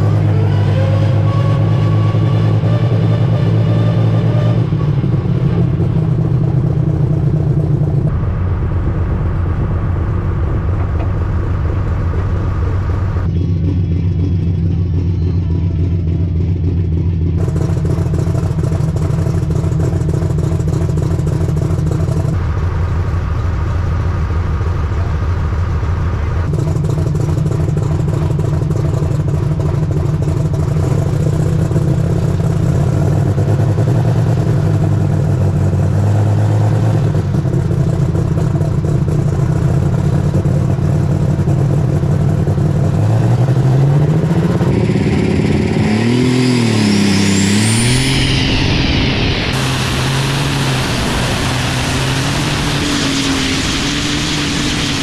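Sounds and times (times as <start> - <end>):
tractor diesel engine idling: 4.7 - 35.6.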